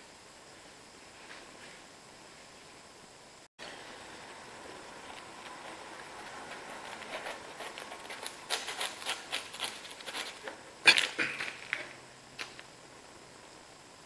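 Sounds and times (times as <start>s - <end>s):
knife sawing through crusty bread: 6.4s - 10.5s.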